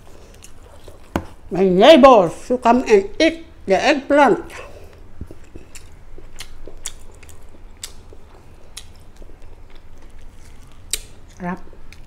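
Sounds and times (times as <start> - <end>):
person chewing food: 0.0 - 1.4, 4.6 - 12.0.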